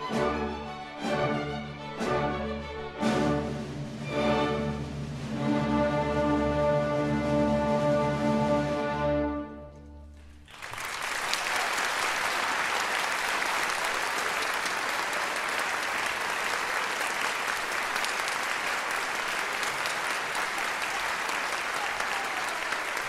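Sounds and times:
audience applause: 0:10.1 - 0:23.0.

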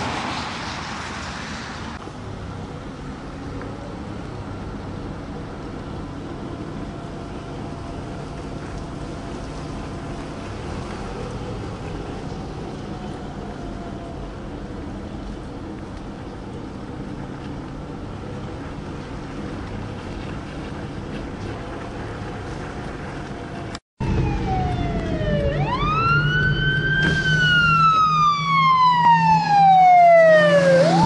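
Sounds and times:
engine hum: 0:00.0 - 0:31.0
fire engine siren wailing: 0:05.6 - 0:15.3, 0:23.3 - 0:31.0.

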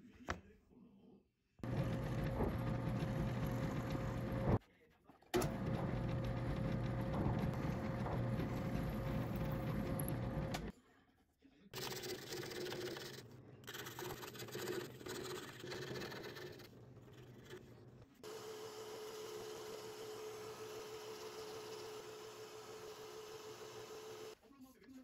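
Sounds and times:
drill press boring wood: 0:01.6 - 0:04.6, 0:05.4 - 0:10.7, 0:18.2 - 0:24.4
scroll saw cutting: 0:11.8 - 0:24.4.

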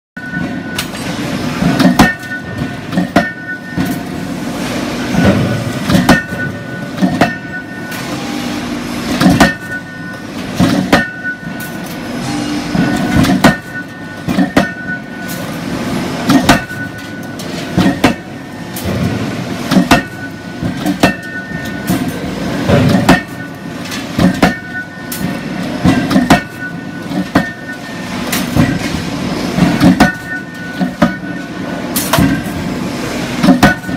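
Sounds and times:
low machinery drone: 0:00.2 - 0:33.9.

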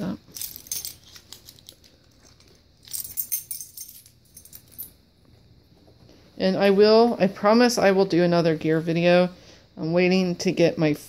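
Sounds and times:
dog chain collar jingling: 0:00.3 - 0:05.0.

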